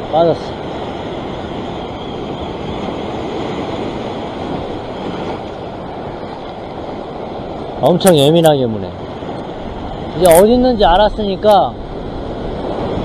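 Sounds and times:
ocean surf over rocks: 0:00.0 - 0:13.0.

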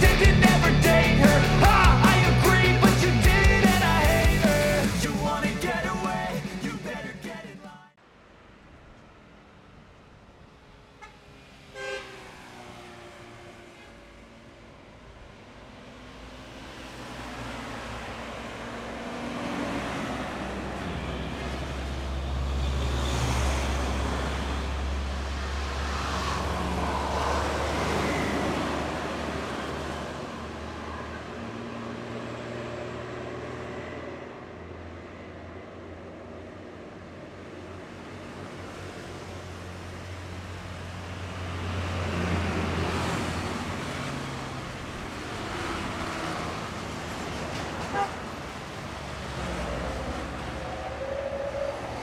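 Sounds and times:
truck diesel engine passing: 0:00.0 - 0:07.1, 0:10.6 - 0:35.2, 0:38.0 - 0:52.0
tyre and road noise: 0:00.0 - 0:07.4, 0:10.1 - 0:36.6, 0:37.2 - 0:52.0
motorcycles passing: 0:15.7 - 0:33.8, 0:38.6 - 0:52.0
vehicle passing close: 0:15.9 - 0:31.1.

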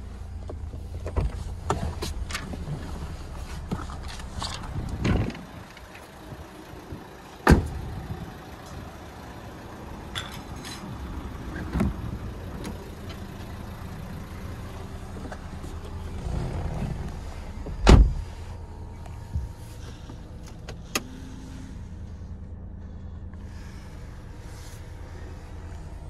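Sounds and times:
car doors thudding shut: 0:07.4 - 0:07.9, 0:16.3 - 0:18.3
low rumble: 0:11.9 - 0:26.0.

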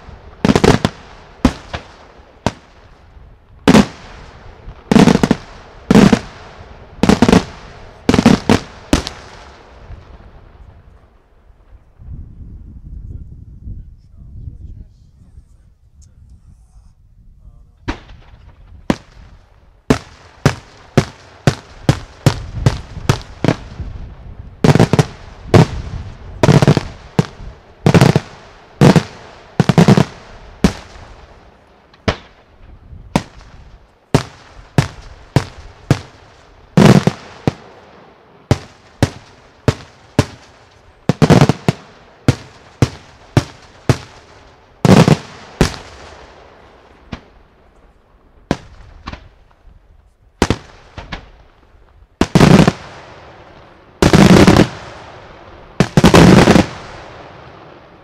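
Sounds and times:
fireworks bangs: 0:00.0 - 0:03.0, 0:03.6 - 0:12.1, 0:17.8 - 0:47.8, 0:48.4 - 0:49.7, 0:50.4 - 0:58.0.

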